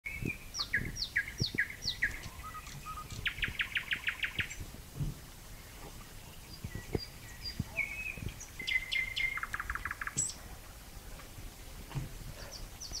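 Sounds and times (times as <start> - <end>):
nightingale singing: 0.0 - 4.8, 5.4 - 10.5, 12.4 - 13.0
faint low thumps: 0.1 - 8.8.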